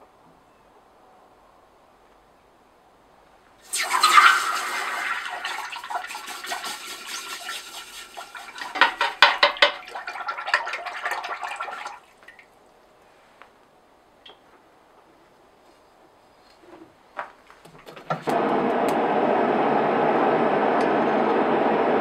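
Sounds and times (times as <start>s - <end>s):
hot steel sizzling in water: 3.6s - 10.8s.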